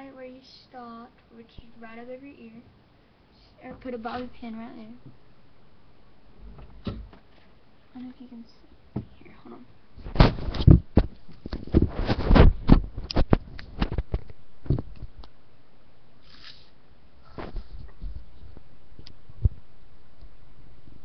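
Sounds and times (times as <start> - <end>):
handling rustles and bumps: 10.0 - 15.2.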